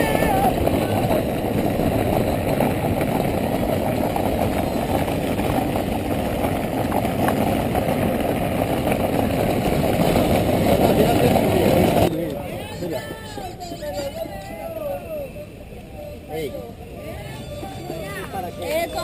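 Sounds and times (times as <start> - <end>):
wind buffeting microphone: 0.0 - 12.1.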